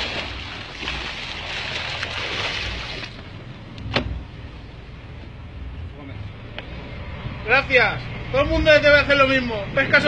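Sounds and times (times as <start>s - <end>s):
low steady rumble: 0.0s - 10.0s
water and wind rushing: 0.0s - 10.0s.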